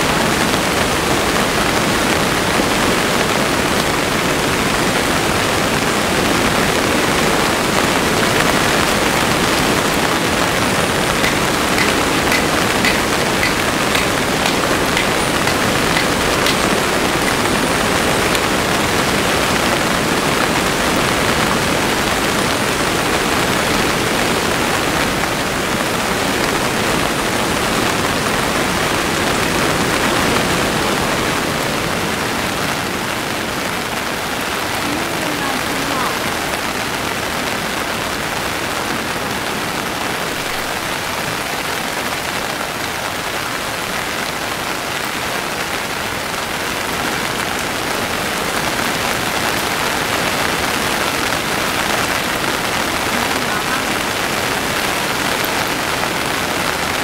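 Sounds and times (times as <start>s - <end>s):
heavy rain: 0.0s - 57.0s
firewood knocking: 10.7s - 18.4s.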